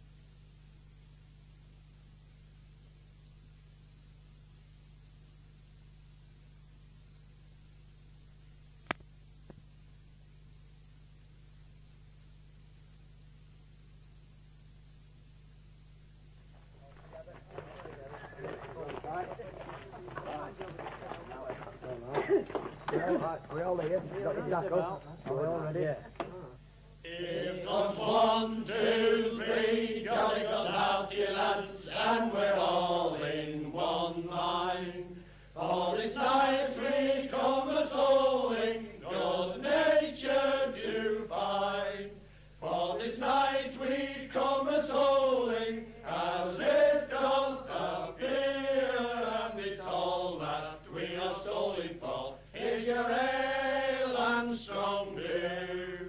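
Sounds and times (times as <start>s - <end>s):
men singing a folk song: 27.0s - 56.0s.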